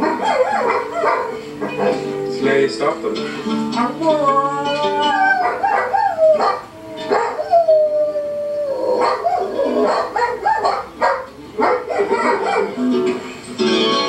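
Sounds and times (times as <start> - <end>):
dog howling: 0.0 - 2.0, 4.0 - 12.8.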